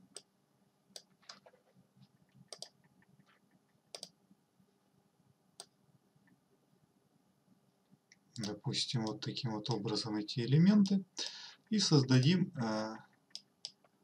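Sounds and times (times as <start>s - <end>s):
computer mouse clicking: 2.3s - 4.2s, 13.1s - 13.9s.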